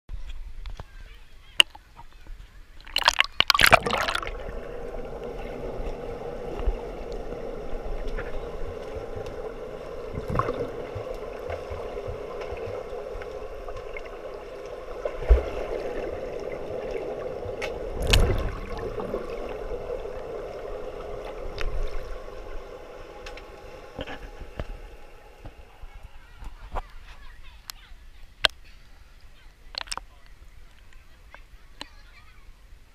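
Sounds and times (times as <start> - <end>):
pool water splashing: 1.0 - 32.5
underwater gurgles and knocks: 2.9 - 25.7.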